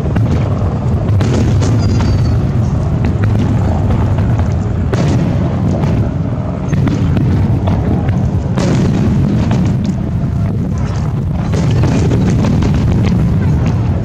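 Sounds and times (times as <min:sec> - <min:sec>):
firework crackles: 0:00.0 - 0:14.0
firework shells booming: 0:00.0 - 0:14.0.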